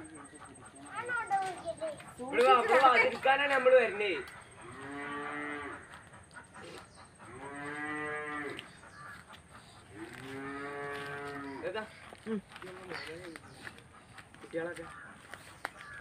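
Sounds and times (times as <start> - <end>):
cow mooing: 4.6 - 5.9, 7.3 - 8.6, 9.9 - 11.6.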